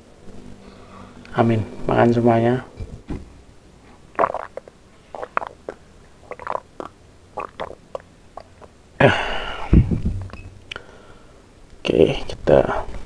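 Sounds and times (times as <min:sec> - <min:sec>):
person gulping water: 0:04.1 - 0:08.8
loud breath out: 0:10.7 - 0:11.4.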